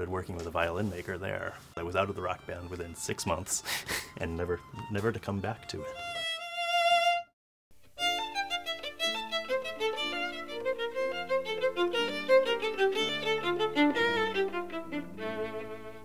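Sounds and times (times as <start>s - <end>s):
violin music: 0.0s - 16.0s.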